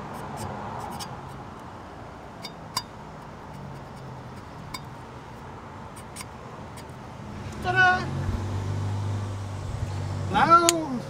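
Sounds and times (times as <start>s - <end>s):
marker tapping metal: 0.0s - 1.7s, 2.4s - 7.0s.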